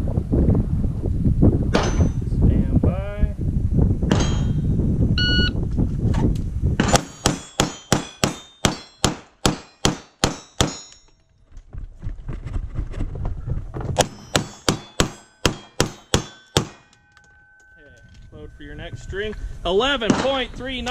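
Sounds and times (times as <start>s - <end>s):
low rumble: 0.0s - 6.9s, 17.3s - 20.8s
steel targets ringing: 1.8s - 2.2s, 4.1s - 4.7s, 6.8s - 11.2s, 14.0s - 20.9s
pistol shots: 4.1s - 4.5s, 6.8s - 10.8s, 14.0s - 17.0s
shot timer beep: 5.2s - 5.6s.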